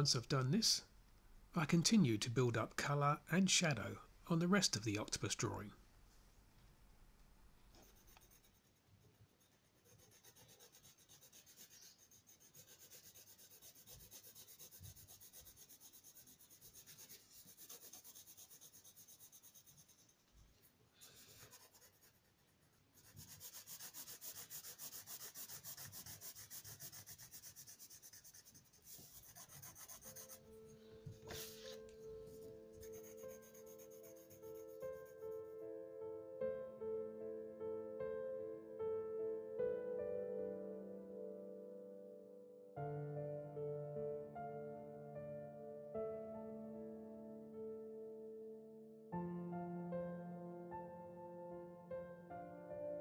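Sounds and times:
soft music: 0.0s - 0.9s, 1.5s - 5.8s, 9.4s - 20.1s, 21.1s - 53.0s
pencil scratching on paper: 7.7s - 35.5s.

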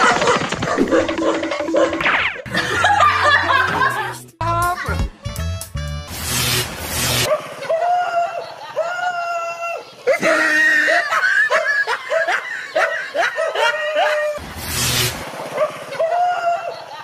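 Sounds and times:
dog barking: 0.0s - 2.0s, 7.3s - 7.8s, 10.9s - 14.4s, 15.6s - 15.8s
people laughing: 2.5s - 4.2s, 7.4s - 14.4s, 15.8s - 17.0s.

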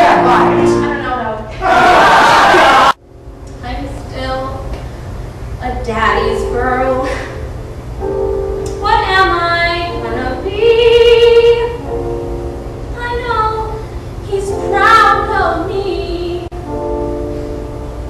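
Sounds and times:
woman singing: 8.8s - 11.8s, 13.0s - 16.5s.

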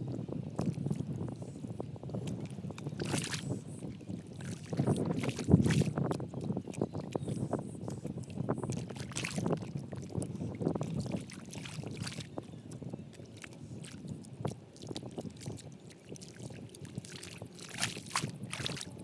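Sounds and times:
hands squelching through wet mud: 2.2s - 3.6s, 8.7s - 9.7s, 10.9s - 19.0s
water slaps and splashes: 2.2s - 3.6s, 4.3s - 7.3s, 8.7s - 19.0s.

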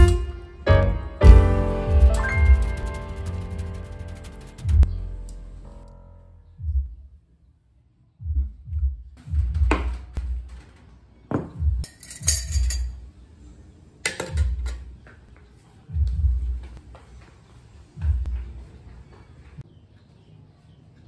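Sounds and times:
ceramic and metal clatter: 11.8s - 12.9s
cutlery clinking: 11.9s - 13.0s.

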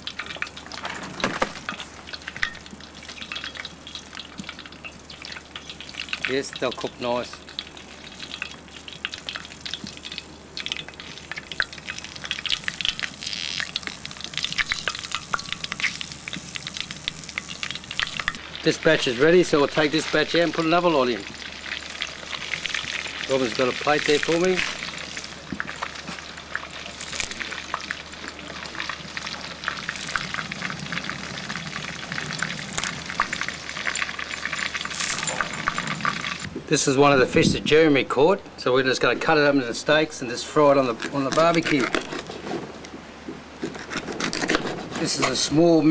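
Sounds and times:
prawns sizzling in hot oil: 0.0s - 36.5s.

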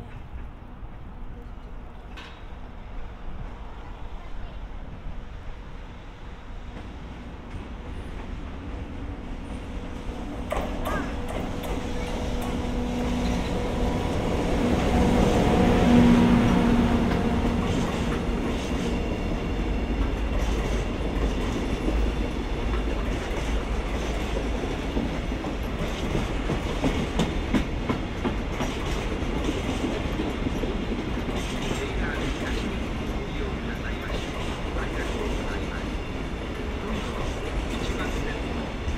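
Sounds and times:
electric locomotive hum: 0.0s - 38.9s
wheels clacking over rail joints: 10.1s - 19.0s.

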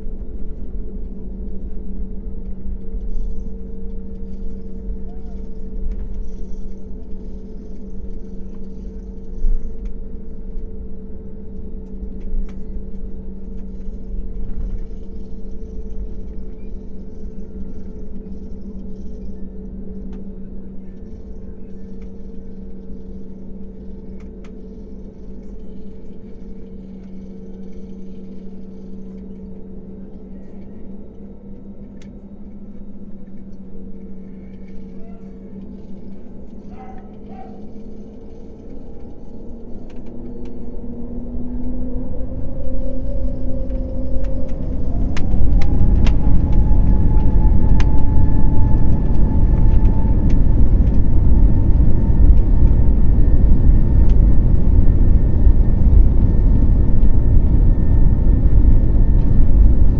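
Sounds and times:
jet engine idling hum: 0.0s - 59.9s
wheels rumbling on taxiway: 35.6s - 59.9s.

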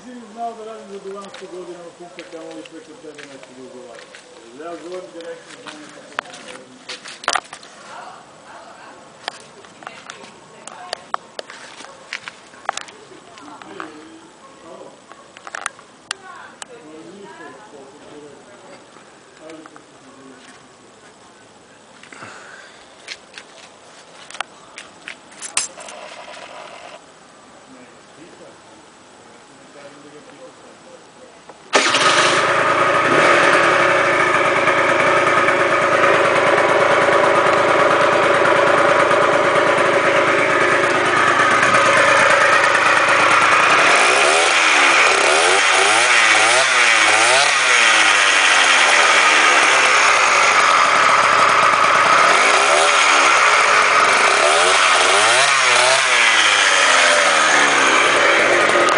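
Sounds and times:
two-stroke scooter engine revving: 31.7s - 58.9s.

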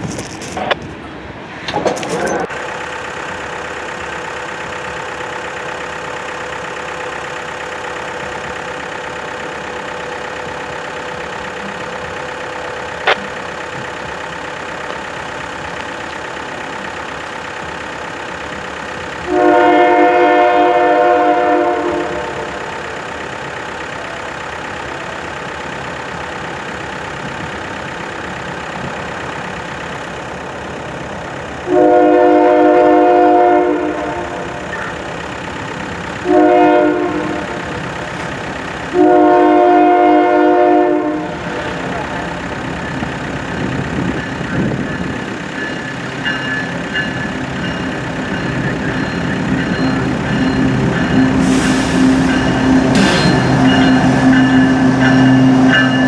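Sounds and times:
train rumble: 0.0s - 56.0s
train air horn blast: 19.3s - 22.9s, 31.6s - 34.6s, 36.2s - 37.7s, 38.9s - 42.0s, 51.3s - 55.0s.

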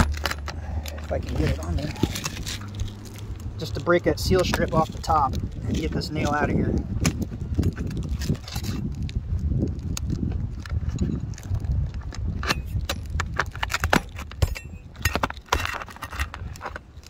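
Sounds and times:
flat bar scraping shingle: 0.0s - 9.2s, 10.1s - 17.0s
low rumble: 0.0s - 13.6s.

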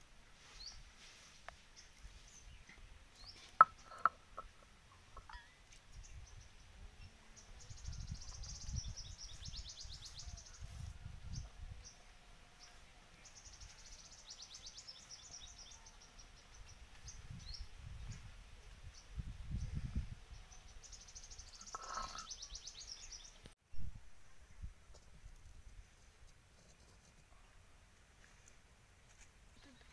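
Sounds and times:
birds trilling and chirping: 18.9s - 23.5s.

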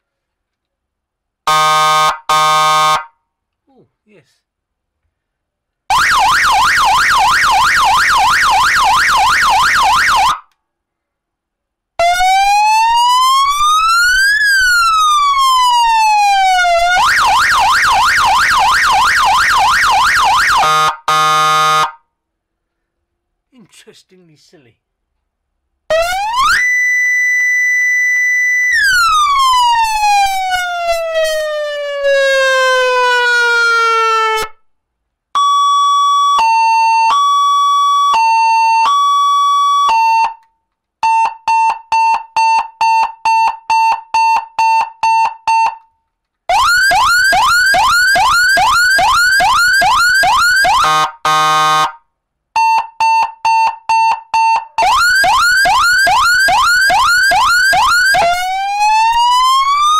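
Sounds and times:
electronic siren wailing: 1.5s - 3.1s, 5.9s - 10.5s, 12.0s - 22.0s, 25.9s - 34.6s, 35.4s - 40.4s, 46.5s - 52.0s, 52.6s - 59.9s
siren yelp: 1.5s - 3.2s, 5.9s - 10.5s, 12.0s - 22.0s, 25.9s - 34.6s, 35.4s - 40.4s, 41.0s - 45.8s, 46.5s - 52.0s, 52.6s - 59.9s
siren hi-lo tone: 25.9s - 34.5s, 53.4s - 59.9s
siren pulsing beep: 35.4s - 40.4s, 41.0s - 45.8s, 52.6s - 59.9s.

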